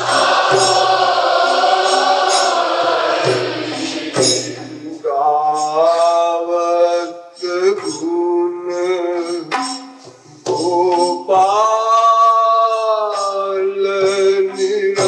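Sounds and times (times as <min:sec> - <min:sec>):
musical accompaniment: 0:00.0 - 0:15.0
man singing devotional song: 0:04.2 - 0:09.8, 0:10.4 - 0:15.0.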